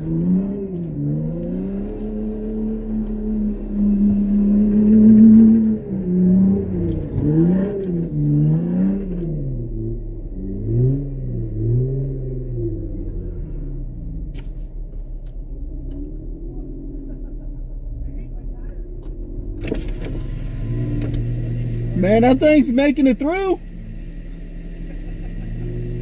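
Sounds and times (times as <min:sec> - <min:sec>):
engine revving hard: 0:00.0 - 0:13.6, 0:19.6 - 0:26.0.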